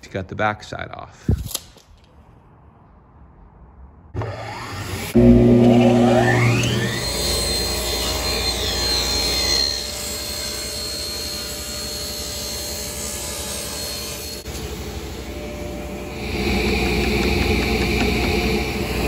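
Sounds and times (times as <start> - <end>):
table saw cutting plywood: 4.2 - 19.0.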